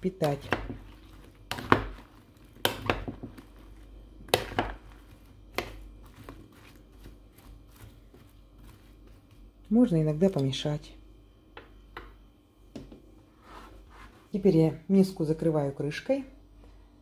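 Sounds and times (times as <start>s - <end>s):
soft shuffling of food pieces: 4.8s - 9.9s, 13.3s - 14.5s.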